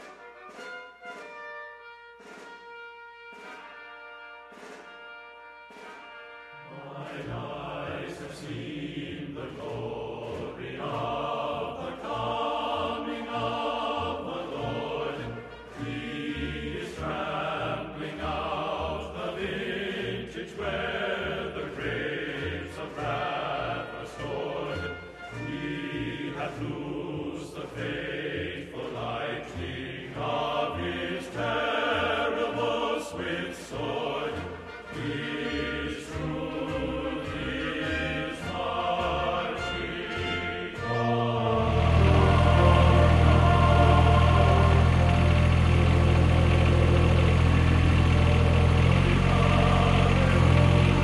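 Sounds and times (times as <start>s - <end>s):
choir singing classical music: 0.0s - 51.0s
low bass line: 40.9s - 51.0s.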